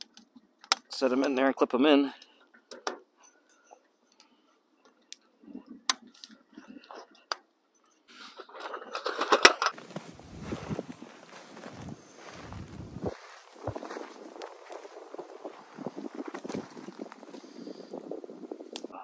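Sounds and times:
rushing outdoor noise: 9.8s - 19.0s.

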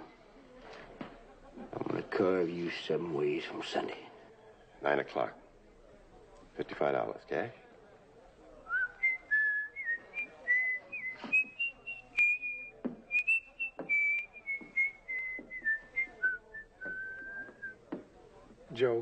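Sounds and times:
man whistling a slow tune: 8.7s - 17.8s
footsteps: 10.2s - 18.7s.

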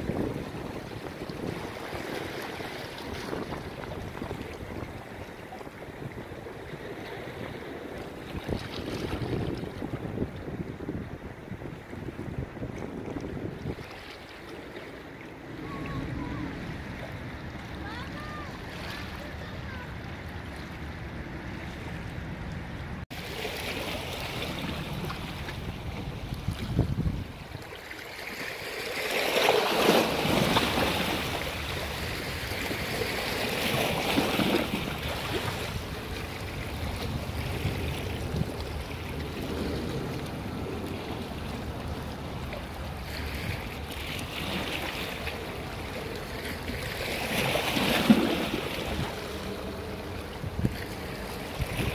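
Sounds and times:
sea waves washing onto shore: 0.0s - 51.9s.

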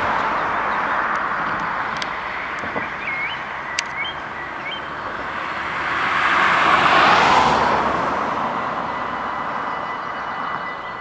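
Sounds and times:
car driving past: 0.0s - 10.5s
level crossing warning bells: 0.0s - 11.0s.

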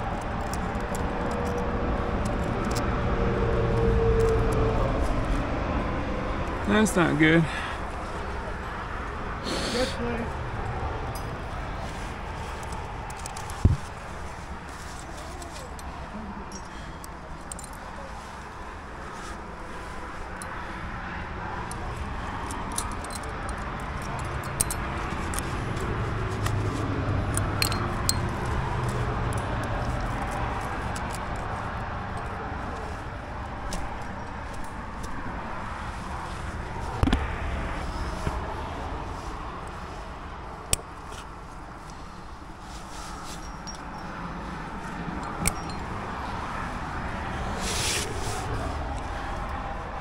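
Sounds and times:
carabiners clinking and clicking: 0.0s - 2.9s, 3.7s - 5.4s, 11.0s - 11.6s, 12.4s - 14.0s, 14.8s - 18.1s, 21.6s - 35.2s, 43.2s - 46.5s
nylon jacket rustling: 17.7s - 20.8s, 41.0s - 45.1s, 45.8s - 49.4s.

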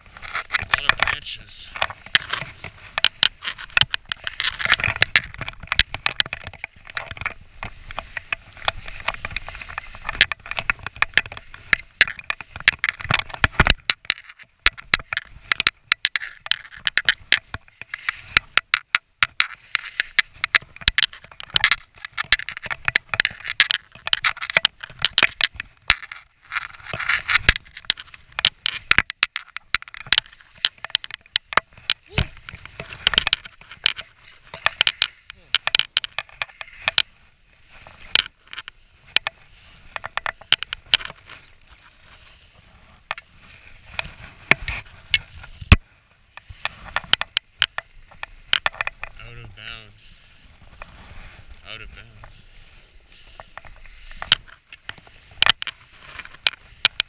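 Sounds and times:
sharp clicks and knocks: 0.0s - 49.9s, 53.2s - 57.0s.

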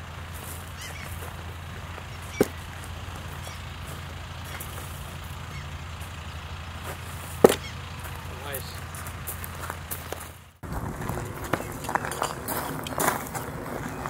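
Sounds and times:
knife striking wooden target: 7.4s - 7.6s.

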